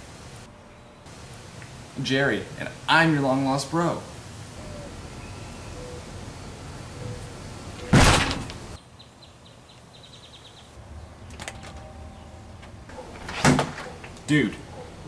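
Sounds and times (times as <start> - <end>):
front door slamming: 7.8 - 8.8, 12.6 - 14.2.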